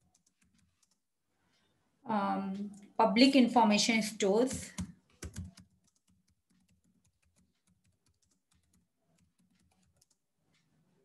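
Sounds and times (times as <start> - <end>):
typing on computer keyboard: 0.0 - 1.0, 4.5 - 10.2.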